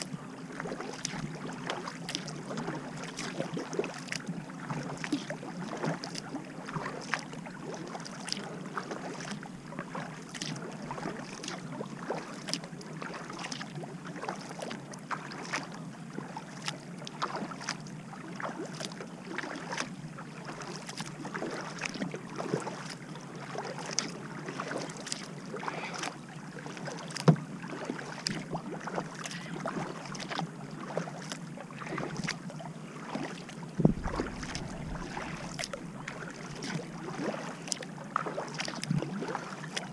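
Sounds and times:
bow wave along hull: 0:00.0 - 0:39.9
kayak paddle strokes: 0:00.0 - 0:39.9
water splashing and dripping: 0:26.8 - 0:32.4, 0:33.1 - 0:39.9.

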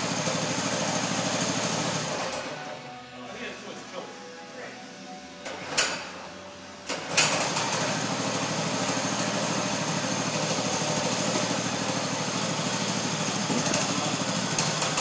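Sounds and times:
small engine running: 0:00.0 - 0:02.8, 0:07.1 - 0:15.0.

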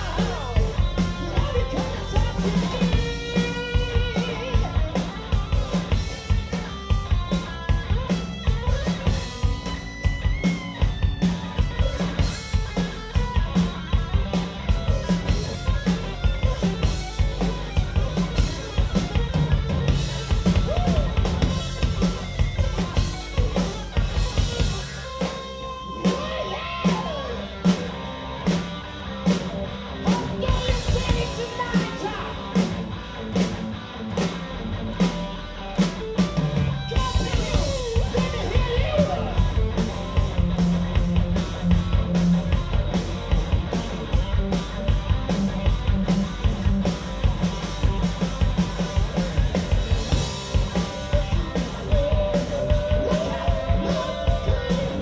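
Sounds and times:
bass guitar: 0:00.0 - 0:55.0
drum kit: 0:00.0 - 0:55.0
electric guitar lead: 0:00.0 - 0:55.0.

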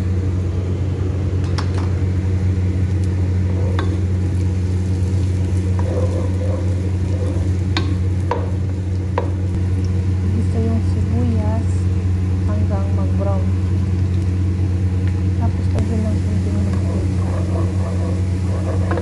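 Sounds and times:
steady low hum: 0:00.0 - 0:19.0
onions sizzling in oil: 0:03.2 - 0:12.7, 0:15.2 - 0:19.0.

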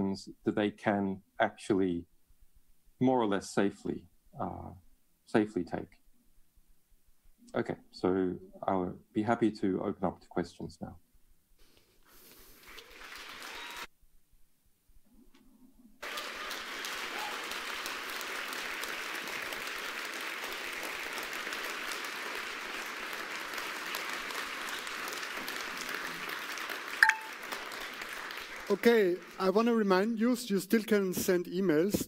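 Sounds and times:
audience applauding: 0:12.5 - 0:13.9, 0:16.0 - 0:30.2.

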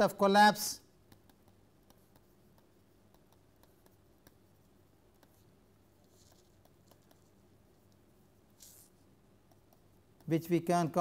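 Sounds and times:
stylus tapping on tablet screen: 0:01.0 - 0:08.1, 0:09.4 - 0:10.4
soft scratch: 0:06.0 - 0:07.4, 0:08.6 - 0:09.0.

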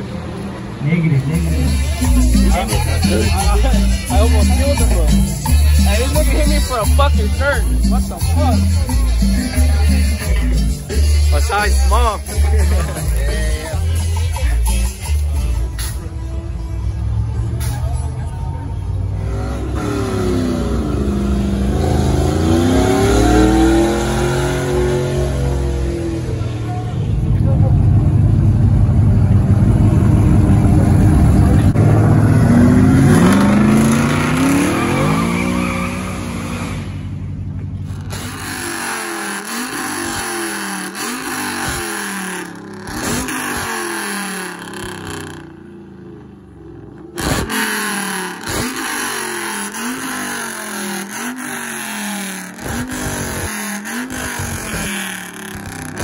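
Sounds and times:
truck engine accelerating: 0:00.0 - 0:56.0
engine revving: 0:19.1 - 0:37.2, 0:37.8 - 0:56.0.

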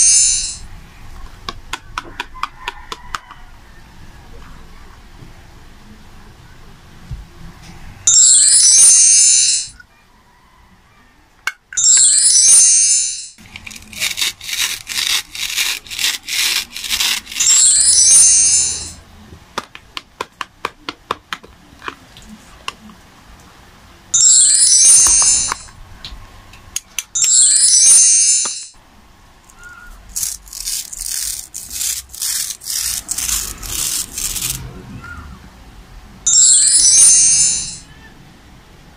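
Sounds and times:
chiming jingle: 0:00.0 - 0:00.6, 0:08.1 - 0:09.8, 0:11.8 - 0:13.4, 0:17.5 - 0:19.0, 0:24.2 - 0:25.7, 0:27.2 - 0:28.8, 0:36.3 - 0:37.9
plastic toy handled: 0:13.4 - 0:17.7, 0:30.1 - 0:34.6
toy knife rasping through crayon: 0:13.5 - 0:17.8, 0:30.1 - 0:34.6.

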